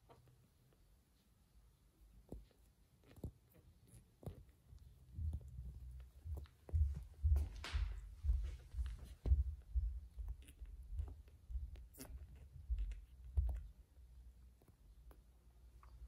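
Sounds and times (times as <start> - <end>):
kittens suckling: 2.3 - 16.0
low muffled thumps: 5.1 - 11.7.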